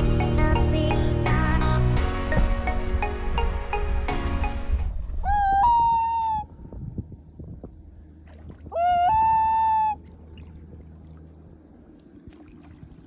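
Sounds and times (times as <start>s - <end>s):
loon wailing: 5.2s - 6.5s, 8.7s - 10.0s.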